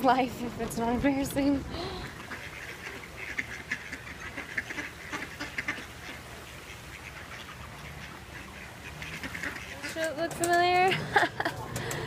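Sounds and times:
ducks quacking: 1.8 - 11.0.

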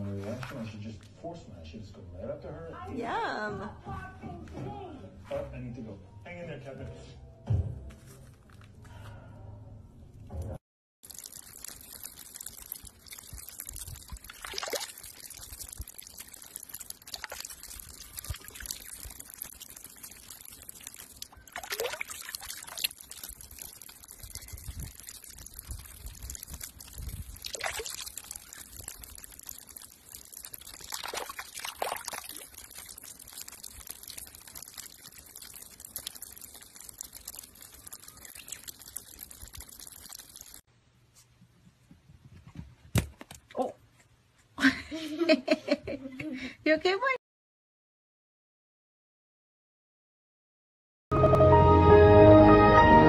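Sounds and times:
water pouring onto rocks: 11.0 - 40.7.

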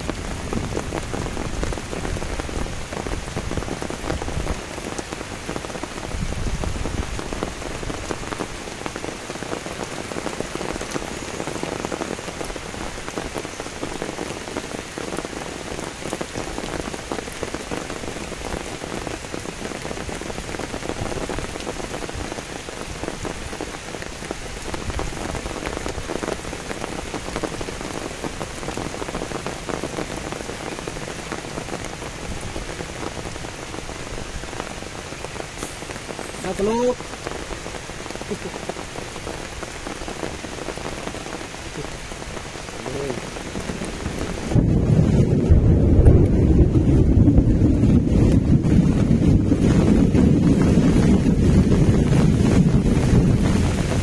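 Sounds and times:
rain falling on grass and stone: 0.0 - 54.0
low rumbling: 43.6 - 53.6.

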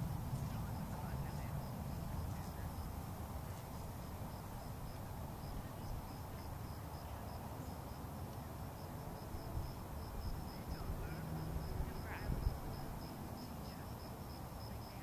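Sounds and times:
high insect chirping: 0.0 - 15.0
wind rumble on microphone: 9.0 - 14.7.

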